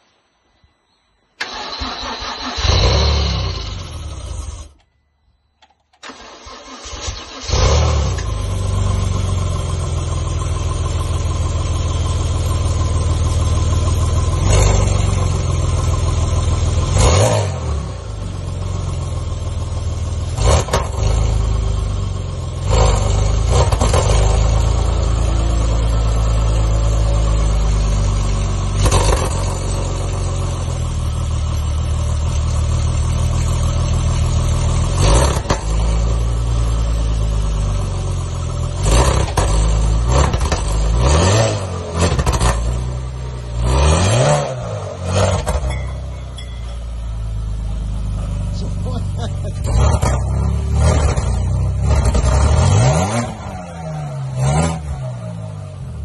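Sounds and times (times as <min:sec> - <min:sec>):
car engine cranking: 0:01.4 - 0:04.9, 0:05.6 - 0:17.4, 0:39.0 - 0:53.6
engine throttle blips: 0:38.9 - 0:56.0
car engine running: 0:41.8 - 0:56.0.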